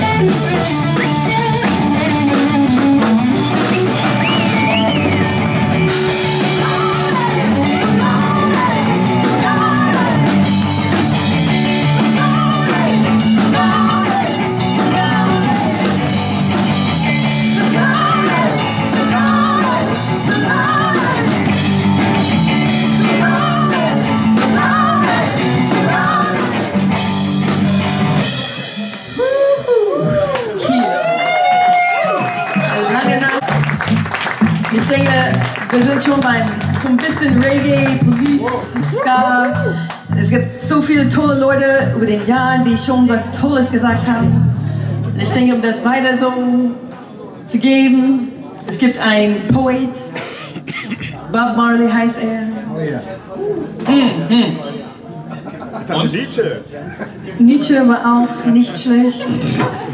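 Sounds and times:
live rock band: 0.0s - 47.1s
woman singing: 6.0s - 16.4s, 17.0s - 26.8s, 34.7s - 44.4s.

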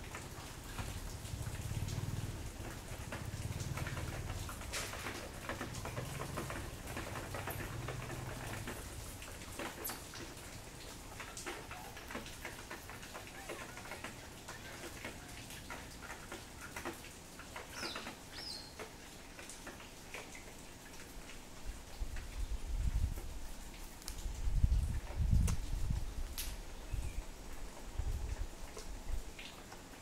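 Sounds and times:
faint clicks and ticks: 0.1s - 21.4s.

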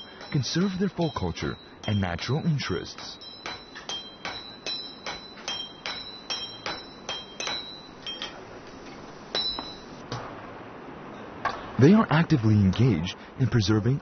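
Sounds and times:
hammer clanging on anvil: 0.0s - 10.0s.

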